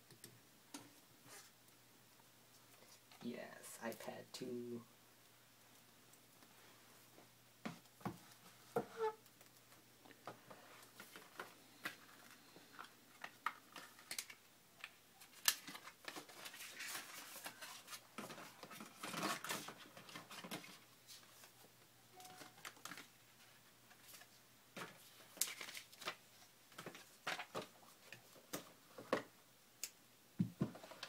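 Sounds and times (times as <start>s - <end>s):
paper and plastic rustling: 9.7s - 29.3s.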